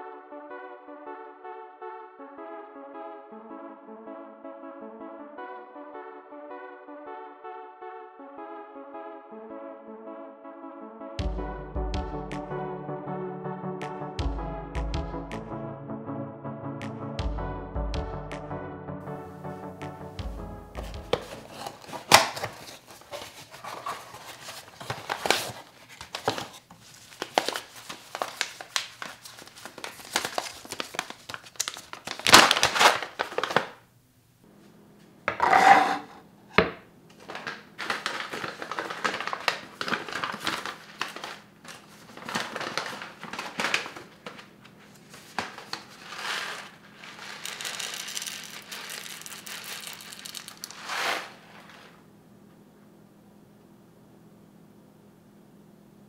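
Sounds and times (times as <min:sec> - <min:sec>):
cardboard box being opened: 0:20.8 - 0:31.1, 0:37.3 - 0:41.3, 0:42.1 - 0:44.4, 0:45.1 - 0:49.1, 0:49.7 - 0:51.9
bag crinkling and rustling: 0:20.8 - 0:33.8, 0:37.2 - 0:52.0
small tearing sounds: 0:45.0 - 0:51.9
coffee beans pouring onto board: 0:46.0 - 0:51.9.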